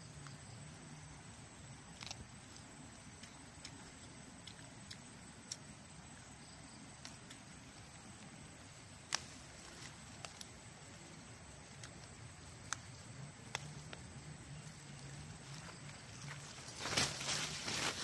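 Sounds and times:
leaves bitten and chewed: 1.6s - 18.0s.

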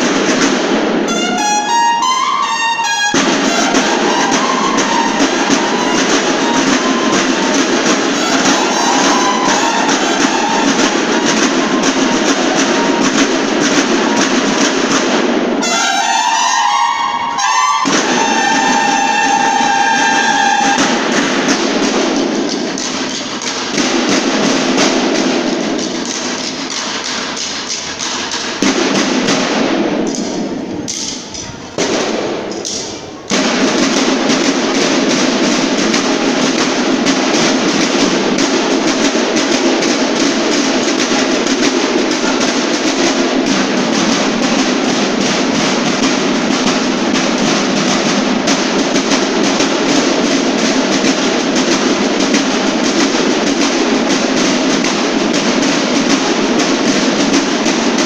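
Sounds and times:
snare and bass drums cadence: 0.0s - 58.0s.

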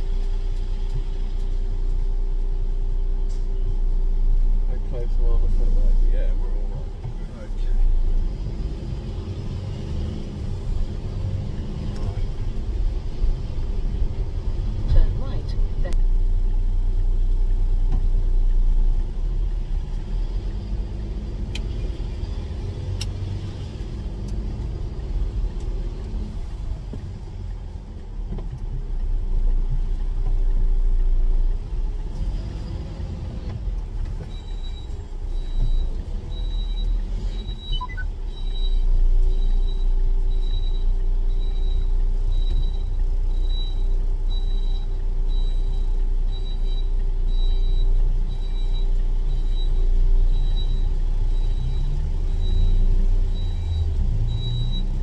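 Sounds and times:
truck diesel engine running: 0.0s - 55.0s
high beeping: 36.3s - 54.9s.

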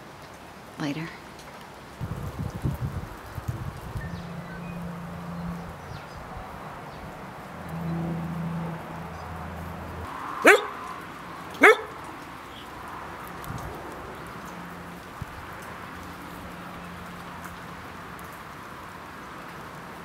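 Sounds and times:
dog barking: 10.4s - 10.9s, 11.6s - 12.0s.

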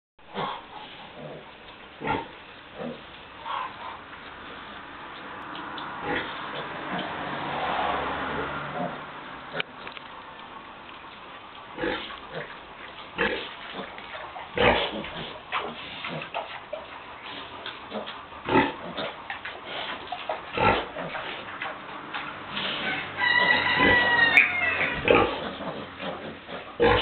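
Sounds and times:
piglets grunting: 0.3s - 4.1s, 8.1s - 9.7s, 13.2s - 16.4s, 17.8s - 19.2s, 20.6s - 21.6s, 22.6s - 27.0s.

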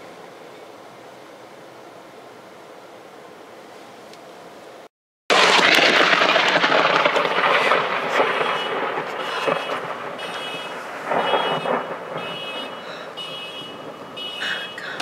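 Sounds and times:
thunder rumble: 5.3s - 15.0s
thunderclap crack: 5.3s - 15.0s.

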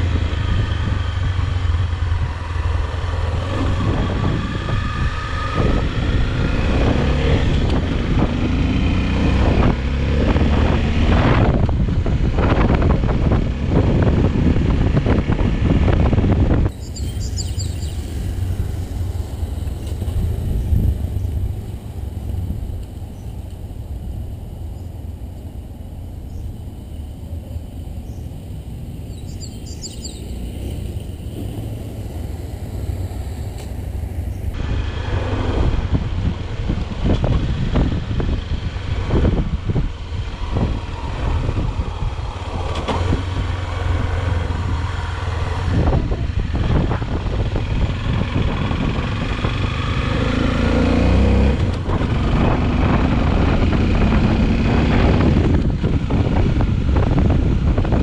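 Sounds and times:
motorcycle engine running: 0.0s - 58.0s
wind buffeting microphone: 0.0s - 58.0s
faint bird chirps: 16.7s - 18.1s, 29.1s - 30.4s.

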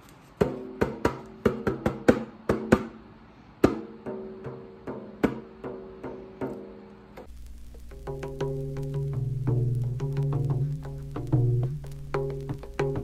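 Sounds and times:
hand drum tapping: 3.6s - 13.0s.

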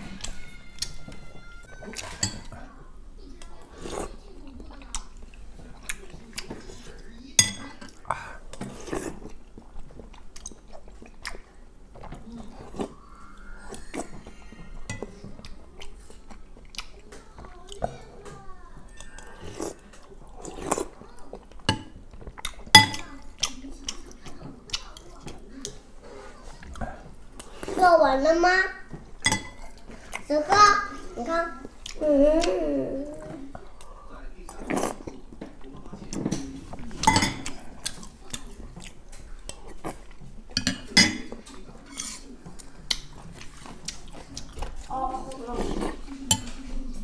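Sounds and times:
chewing: 0.0s - 27.8s, 28.9s - 47.0s
eating sounds: 0.0s - 47.0s
spoon clinking against ceramic bowl: 7.4s - 7.8s, 29.2s - 29.7s, 37.0s - 37.4s
metal spoon clinking on ceramic bowl: 29.2s - 29.6s.

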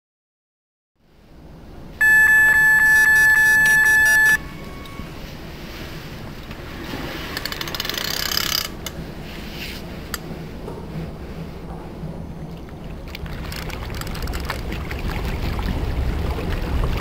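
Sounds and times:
bite alarm beeping: 2.0s - 5.1s.

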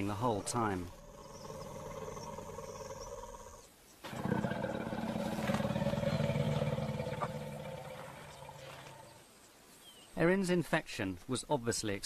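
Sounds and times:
elephant rumbling: 0.0s - 9.3s.

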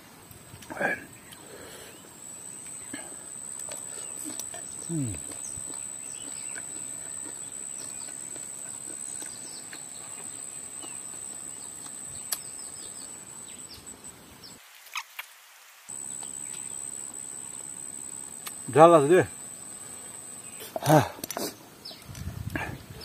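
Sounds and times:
high-pitched insect drone: 0.0s - 14.2s, 15.9s - 23.0s
bird chirps: 1.1s - 14.6s.

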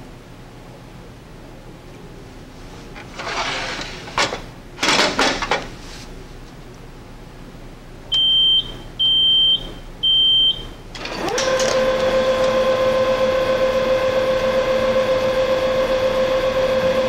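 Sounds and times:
printer running with humming whine: 10.9s - 17.0s.

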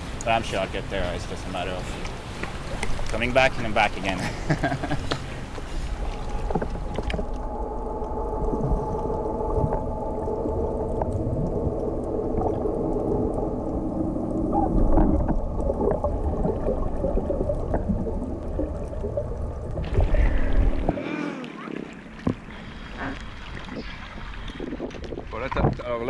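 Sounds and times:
steady humming tones: 0.0s - 25.0s
underwater rush of water: 0.0s - 26.0s
small clicks underwater: 1.9s - 3.2s, 4.8s - 20.0s
air bubbles rising: 6.0s - 25.3s.

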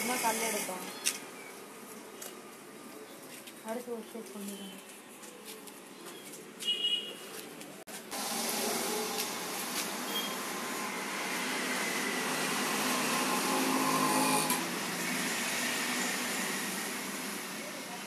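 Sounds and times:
potter's wheel whirring: 8.2s - 17.6s.

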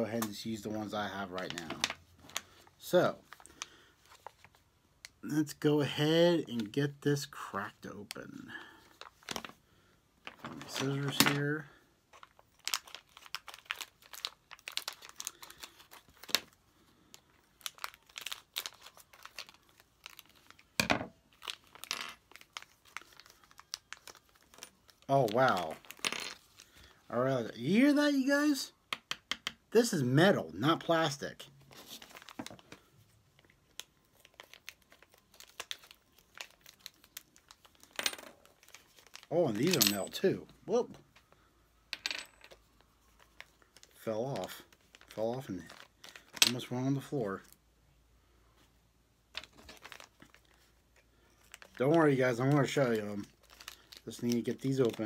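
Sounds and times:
plastic bag crinkling: 10.3s - 26.9s, 31.7s - 40.3s, 42.6s - 46.4s, 49.4s - 55.0s.

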